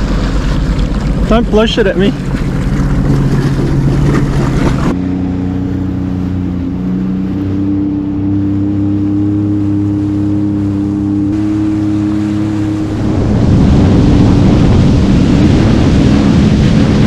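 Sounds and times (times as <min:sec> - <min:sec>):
jet ski engine humming: 0:00.0 - 0:17.0
wind and water noise: 0:00.0 - 0:17.0.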